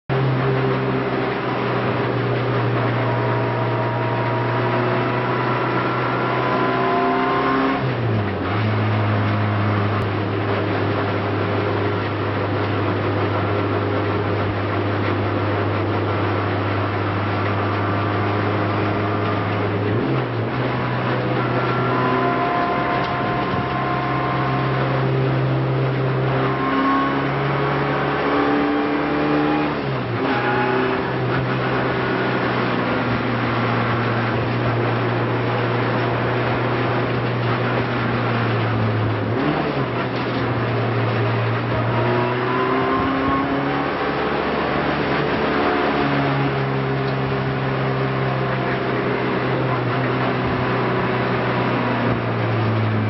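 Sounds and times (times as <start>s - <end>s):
race car engine revving: 0.1s - 53.0s.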